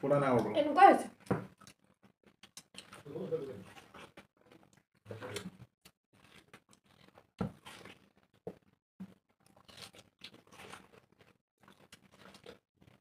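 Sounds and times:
juicy chewing: 1.5s - 8.4s, 9.0s - 13.0s.

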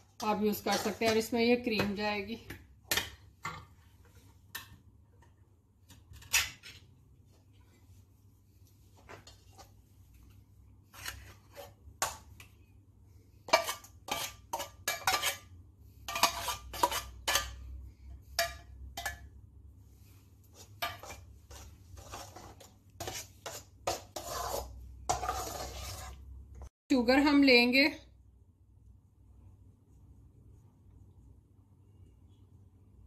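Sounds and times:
metal spoon clinking and scraping: 0.0s - 1.4s, 6.0s - 6.9s, 13.5s - 17.7s, 18.3s - 19.3s, 20.5s - 26.2s.

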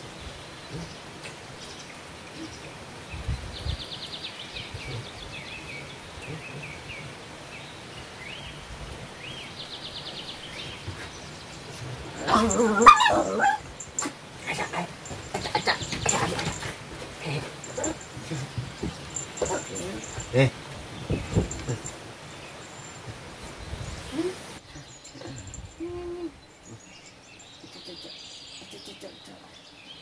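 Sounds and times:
dog barking: 12.2s - 14.1s.

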